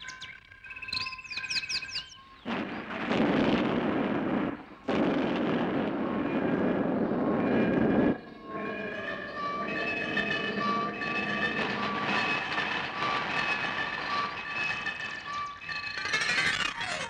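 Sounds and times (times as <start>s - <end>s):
explosion blast effect: 2.5s - 14.5s
descending electronic chirps: 4.1s - 17.0s
held whistling tones: 6.0s - 17.0s.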